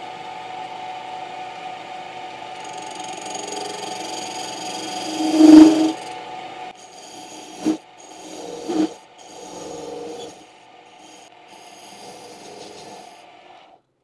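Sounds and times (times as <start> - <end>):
lathe running: 2.5 - 6.2, 6.8 - 13.2
cutting tool scraping metal: 2.6 - 6.2, 6.8 - 13.2.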